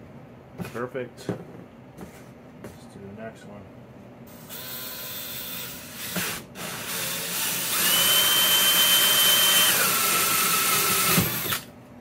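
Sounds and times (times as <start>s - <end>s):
drill with hole saw cutting plastic: 4.3s - 11.7s.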